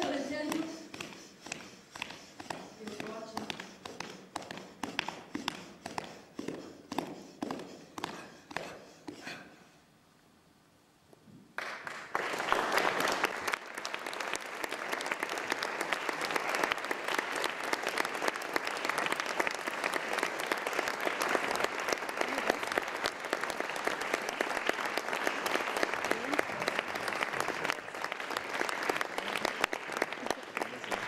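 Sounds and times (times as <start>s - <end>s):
audience applauding: 11.6s - 31.0s.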